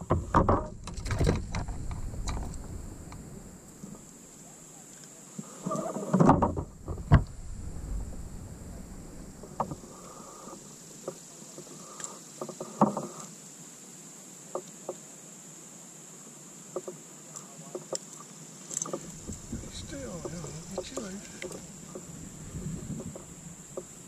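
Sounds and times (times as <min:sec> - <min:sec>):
bumps and thumps: 0:00.0 - 0:04.0, 0:06.2 - 0:09.9, 0:18.9 - 0:24.0
light clicks and knocks: 0:16.7 - 0:24.0.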